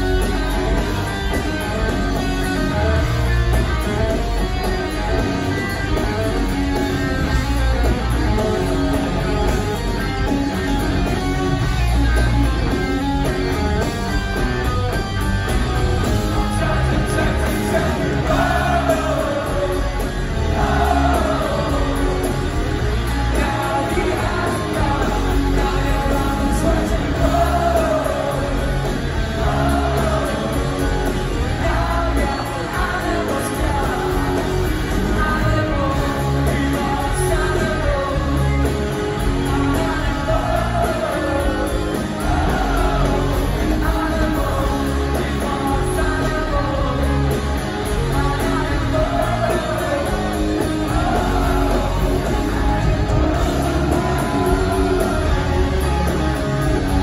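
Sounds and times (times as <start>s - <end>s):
live rock band playing: 0.0s - 57.0s
man singing: 16.3s - 22.4s, 23.0s - 57.0s.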